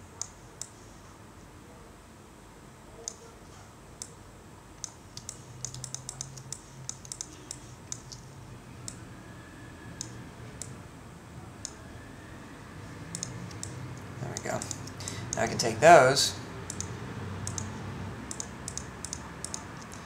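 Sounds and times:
faint low hum: 0.0s - 20.0s
keyboard and mouse clicking: 4.8s - 9.0s, 13.1s - 15.5s, 16.7s - 17.7s, 18.3s - 20.0s.

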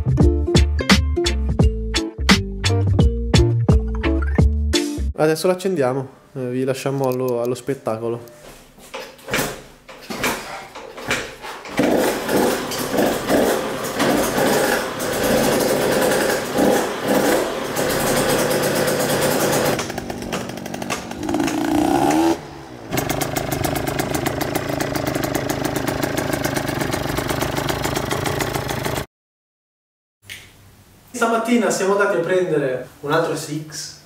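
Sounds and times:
two-stroke engine revving: 11.7s - 29.1s.

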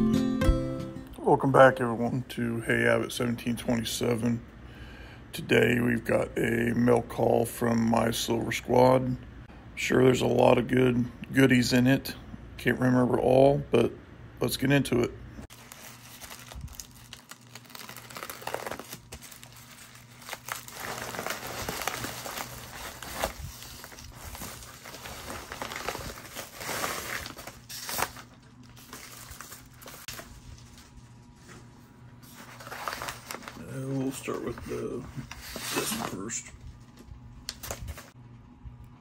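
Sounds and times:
envelopes crinkling and rustling: 15.5s - 38.2s.

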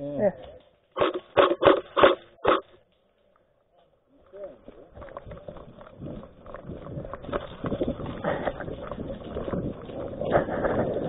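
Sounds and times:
gear jolting against camera: 0.9s - 2.8s, 4.9s - 11.0s
running footsteps on leafy path: 3.2s - 11.0s.

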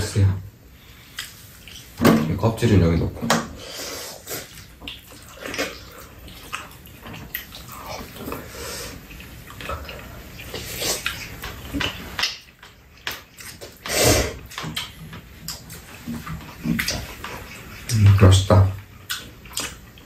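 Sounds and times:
chewing and slurping: 0.9s - 2.0s, 3.6s - 20.0s.

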